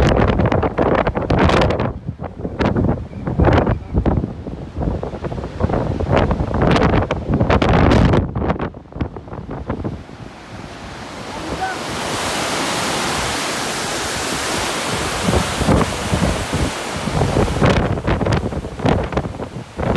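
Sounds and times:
wind buffeting microphone: 0:00.0 - 0:19.9
river water rushing over weir: 0:08.6 - 0:19.9.

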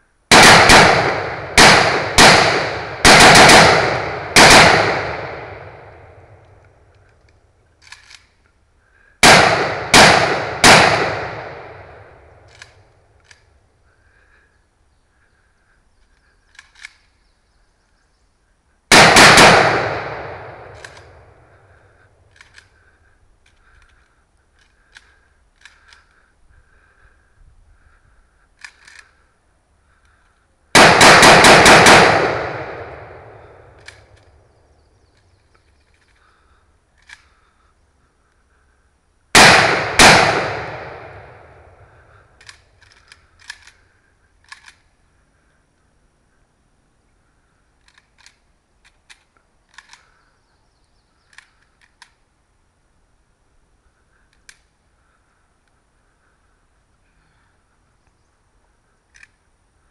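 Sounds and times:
distant rifle shots echoing: 0:00.3 - 0:07.1, 0:09.2 - 0:13.5, 0:18.9 - 0:23.0, 0:30.7 - 0:34.5, 0:39.4 - 0:42.6
faint clicks: 0:05.1 - 0:09.2, 0:11.4 - 0:14.5, 0:15.1 - 0:17.2, 0:20.2 - 0:30.6, 0:32.9 - 0:34.4, 0:35.0 - 0:38.9, 0:40.8 - 0:46.5, 0:47.2 - 0:52.4, 0:53.8 - 0:58.2, 0:58.8 - 0:59.6.

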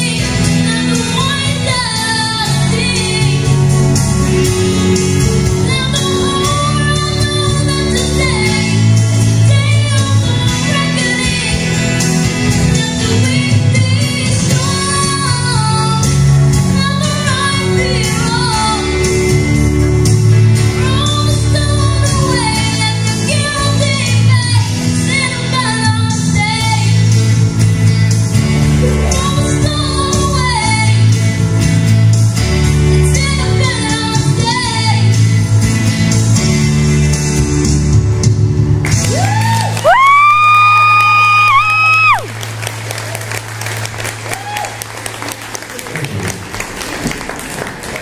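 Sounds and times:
woman singing into microphone: 0:00.0 - 0:03.8, 0:05.4 - 0:19.2, 0:20.7 - 0:27.1, 0:28.9 - 0:31.2, 0:33.0 - 0:35.2
backing track with bass line: 0:00.0 - 0:48.0.

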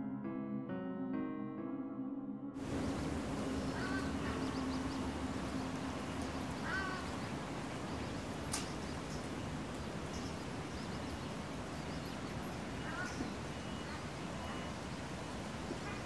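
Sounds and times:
short bird calls: 0:02.6 - 0:16.0
steady hiss: 0:02.6 - 0:16.0
sharp tick: 0:08.5 - 0:09.2.

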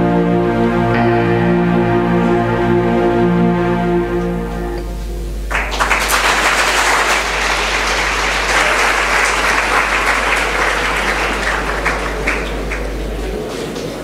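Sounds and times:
steady low hum: 0:00.0 - 0:14.0
audience applauding: 0:05.4 - 0:14.0.

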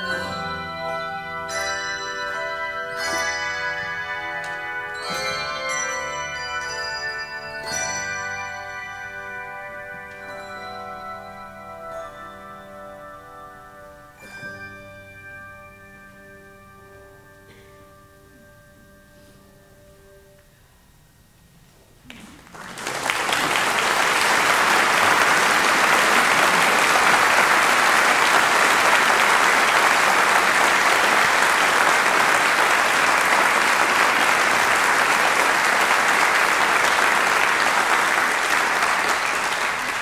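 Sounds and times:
audience applause: 0:22.1 - 0:40.0.

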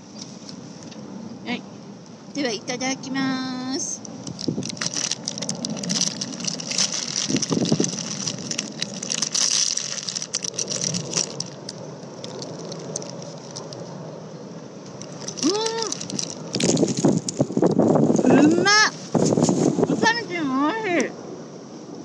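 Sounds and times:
wind: 0:00.0 - 0:22.0
foil wrapper crinkling: 0:04.1 - 0:13.9, 0:14.9 - 0:17.7.

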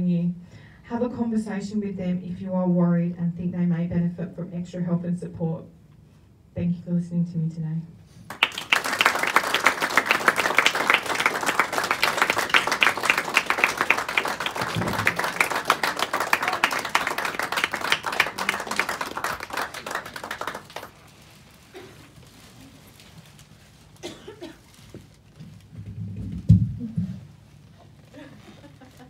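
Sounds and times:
audience applauding: 0:08.3 - 0:21.2.

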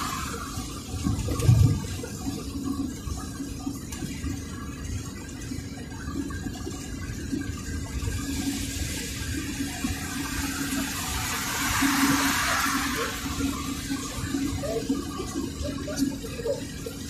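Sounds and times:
rushing noise: 0:09.4 - 0:14.6.

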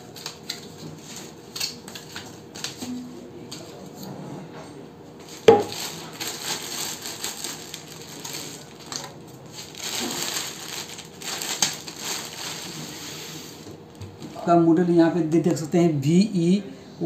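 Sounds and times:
plastic and cardboard crinkling: 0:05.2 - 0:14.4
sharp knock: 0:05.5 - 0:05.7.

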